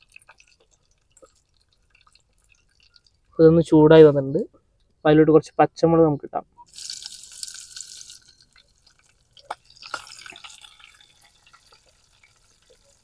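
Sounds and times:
chillies sizzling in oil: 6.6s - 13.0s.

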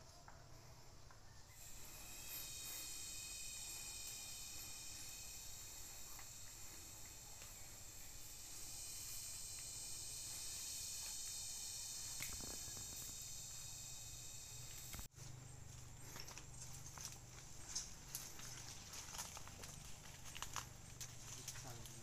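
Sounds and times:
high-pitched insect chorus: 0.0s - 22.0s
rustling footsteps in undergrowth: 14.7s - 22.0s.

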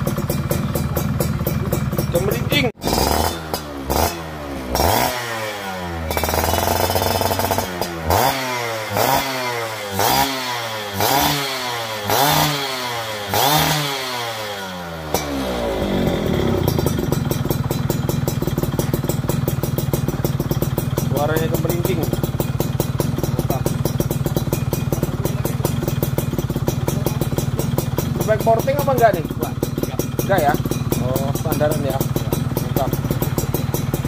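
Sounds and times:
motorcycle engine revving and idling: 0.0s - 34.0s.

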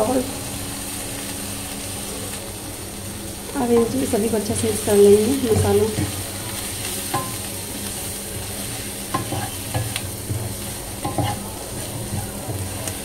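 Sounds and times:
food sizzling in oil: 0.0s - 13.0s
spatula tapping and scraping pan: 7.1s - 7.5s, 8.3s - 13.0s.

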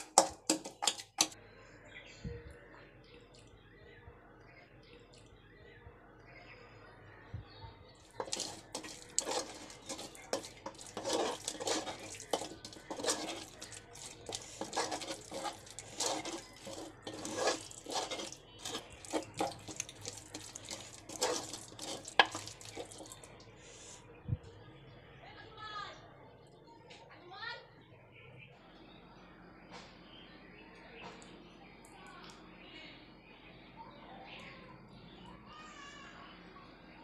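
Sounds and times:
spoon knocking mortar: 0.0s - 1.4s, 8.1s - 23.2s
spoon scraping in wooden mortar: 0.0s - 1.4s, 8.0s - 23.3s.

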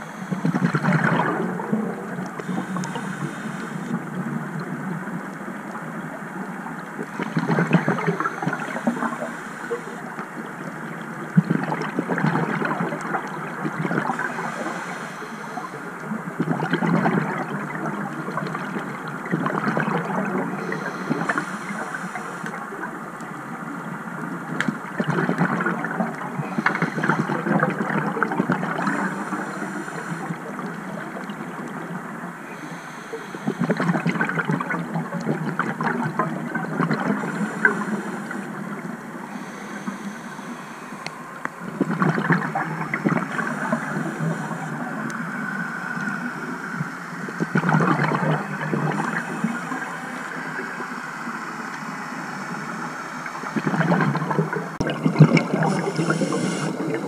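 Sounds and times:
exhaled bubbles gurgling underwater: 0.0s - 57.0s
regulator hiss: 2.4s - 4.0s, 7.1s - 10.2s, 14.1s - 16.0s, 20.6s - 22.8s, 28.8s - 31.1s, 32.4s - 33.8s, 37.2s - 41.6s, 55.6s - 57.0s.

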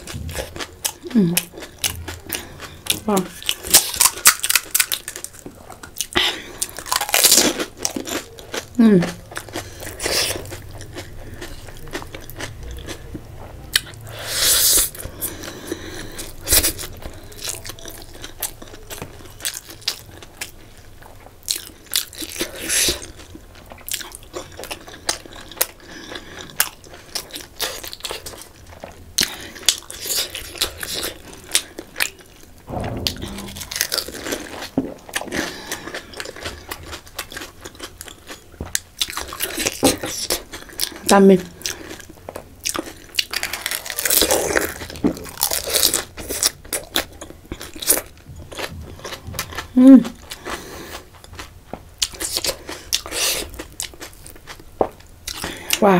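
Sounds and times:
heavy thump: 0.0s - 0.6s, 32.7s - 34.5s
wet chewing of noodles: 0.0s - 32.5s, 34.8s - 55.8s.

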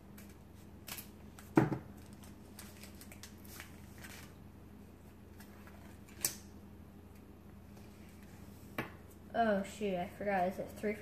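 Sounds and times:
faint steady hum: 0.0s - 11.0s
foil wrapper and cards rustling: 0.3s - 4.4s.

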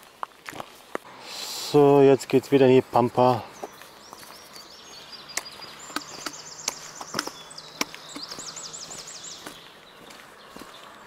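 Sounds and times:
songbird singing: 0.0s - 11.0s
footsteps clicking: 5.4s - 11.0s.

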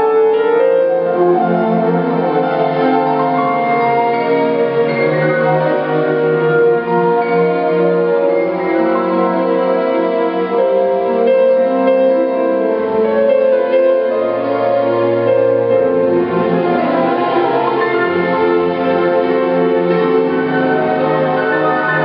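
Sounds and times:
grand piano: 0.0s - 22.0s
string orchestra playing: 0.0s - 22.0s.

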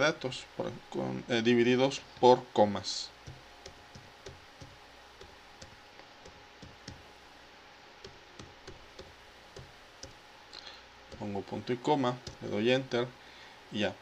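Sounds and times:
keyboard keys clicking: 3.2s - 7.1s, 8.0s - 10.2s, 11.1s - 11.4s, 12.1s - 12.5s.

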